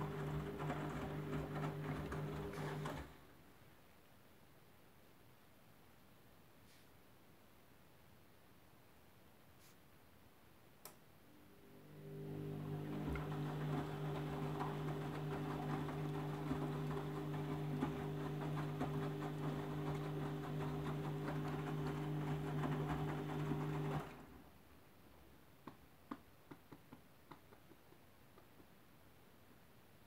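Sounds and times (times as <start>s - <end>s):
washing machine motor hum: 0.0s - 3.2s, 11.4s - 24.5s.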